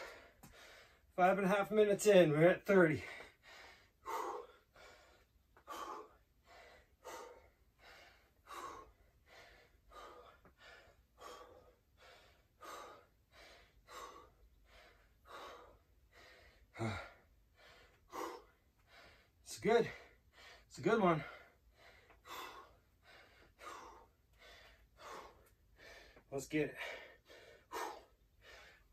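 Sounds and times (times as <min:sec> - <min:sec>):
man breathing hard: 0:00.0 - 0:01.2, 0:02.8 - 0:28.9
man gasping loudly: 0:16.7 - 0:17.3.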